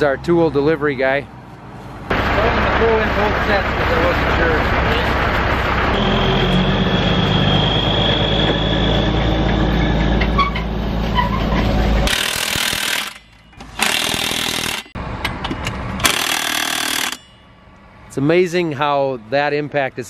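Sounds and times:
diesel truck engine idling: 2.0s - 12.1s
impact wrench hammering: 12.1s - 17.6s.

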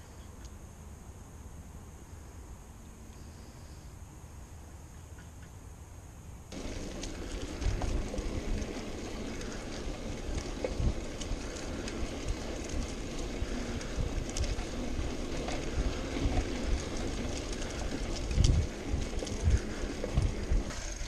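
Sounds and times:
tyres hissing on pavement: 6.5s - 21.0s
wind buffeting microphone: 6.5s - 21.0s.

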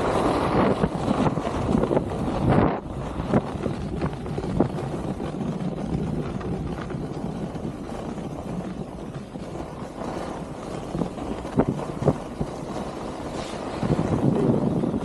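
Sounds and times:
skis hissing on snow: 0.0s - 1.7s, 9.5s - 15.0s
short ski scrapes: 0.0s - 3.4s, 9.4s - 15.0s
wind rushing over microphone: 0.0s - 15.0s.

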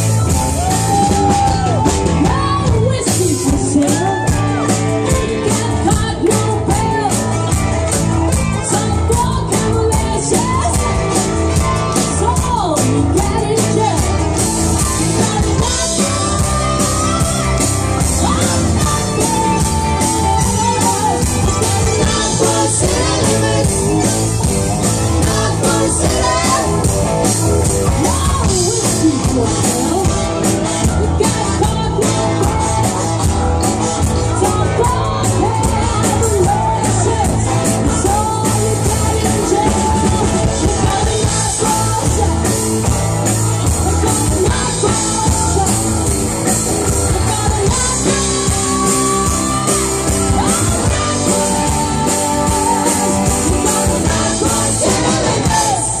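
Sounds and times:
bass guitar: 0.0s - 56.0s
drums playing steady beat: 0.0s - 56.0s
women singing together: 18.2s - 24.2s, 25.2s - 27.0s, 47.2s - 56.0s.

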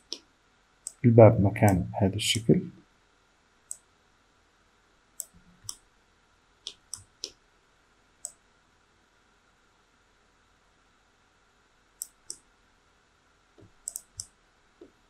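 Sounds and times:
computer mouse clicks: 0.0s - 1.0s, 3.7s - 3.9s, 5.2s - 5.8s, 6.6s - 7.4s, 8.2s - 8.4s, 12.0s - 12.4s, 13.6s - 15.0s.

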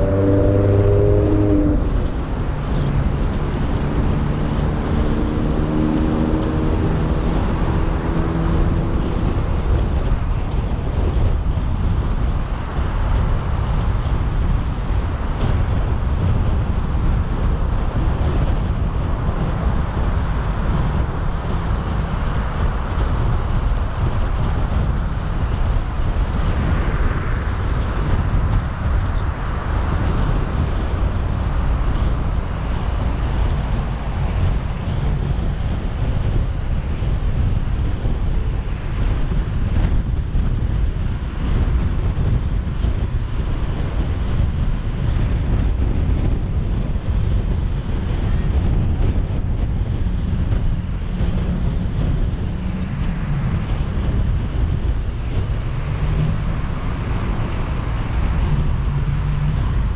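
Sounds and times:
hum of steady tones: 0.0s - 5.9s
car engine and tyre noise: 0.0s - 59.9s.

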